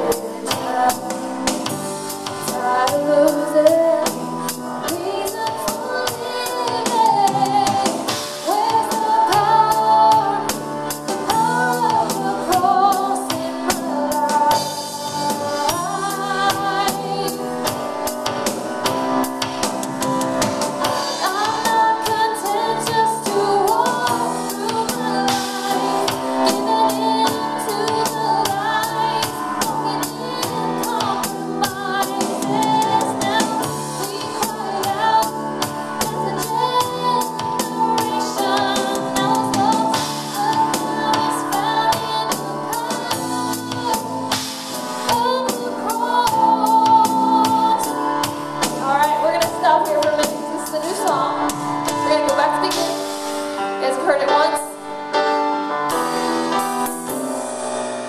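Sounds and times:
drum kit steady beat: 0.0s - 58.0s
electric guitar: 0.0s - 58.0s
keyboard playing: 0.0s - 58.0s
woman singing lead: 0.0s - 58.0s
backing voices singing: 21.0s - 53.0s.

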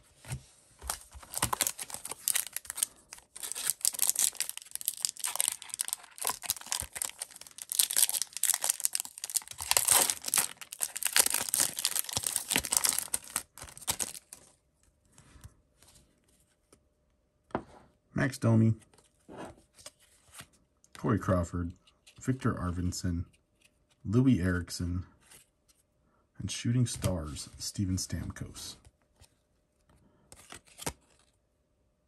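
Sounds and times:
plastic wrapper tearing and crinkling: 0.8s - 14.5s.

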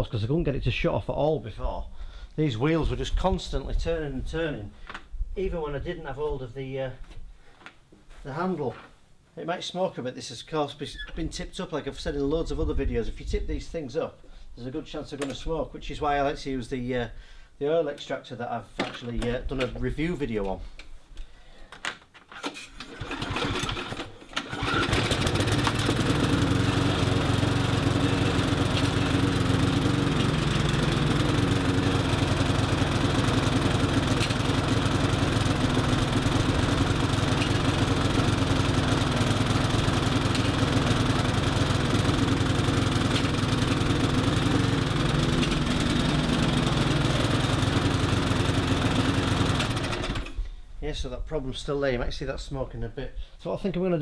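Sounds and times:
lawn mower pull start: 22.3s - 50.6s
lawn mower engine running: 22.8s - 50.4s.

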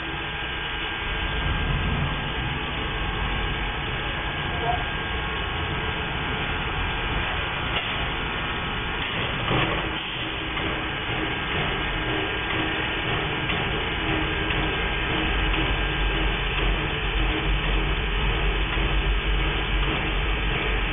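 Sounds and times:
low rumble: 0.0s - 9.2s
turntable mechanical running noise: 0.0s - 20.9s.

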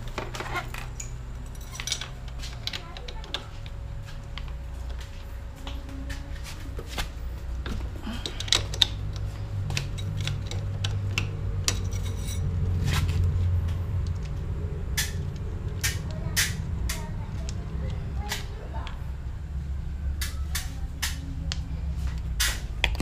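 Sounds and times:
steady low rumble: 0.0s - 23.0s
spanner clinking on bolts: 0.6s - 2.8s, 9.8s - 11.0s, 11.6s - 12.5s.

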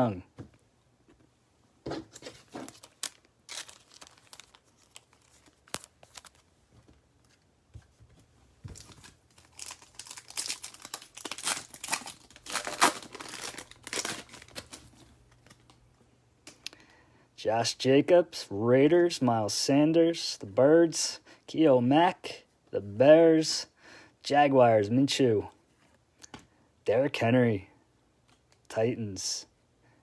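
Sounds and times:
foil wrapper crinkling and tearing: 2.5s - 6.5s, 8.8s - 15.8s.

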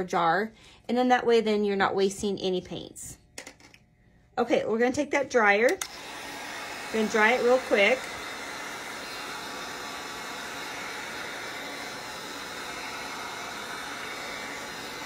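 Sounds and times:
heat gun blowing: 5.8s - 15.0s.

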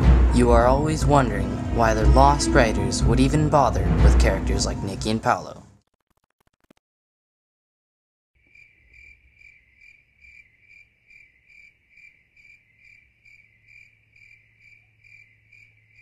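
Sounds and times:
low hum: 0.0s - 5.8s
cricket chirping: 8.4s - 16.0s.

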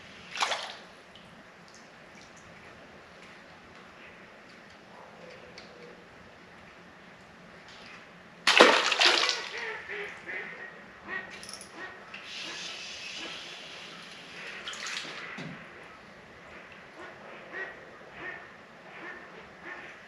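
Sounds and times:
fish splashing into water: 0.3s - 0.8s, 8.5s - 9.6s.

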